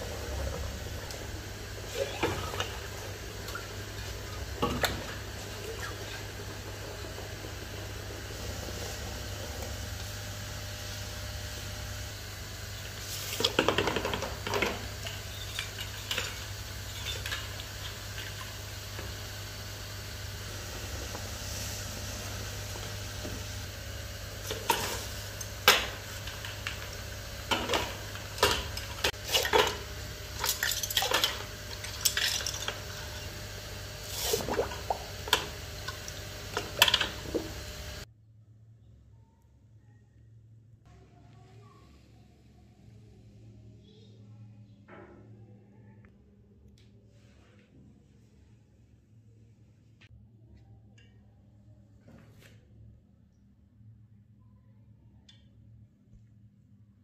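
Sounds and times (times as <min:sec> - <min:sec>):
steady low hum: 0:00.0 - 0:47.1
metal parts clinking in liquid: 0:30.4 - 0:32.9.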